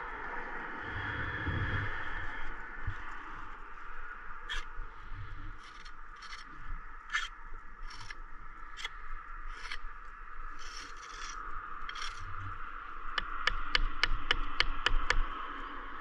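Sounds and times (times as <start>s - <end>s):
trowel scraping mortar: 5.6s - 6.4s, 7.1s - 8.1s, 9.5s - 9.8s, 10.6s - 12.3s.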